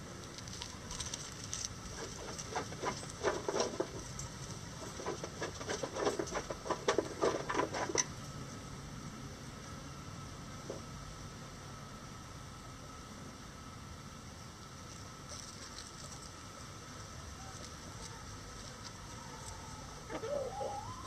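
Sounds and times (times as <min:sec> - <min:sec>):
chickens rustling in dry leaves: 0:00.0 - 0:07.8, 0:14.7 - 0:21.0.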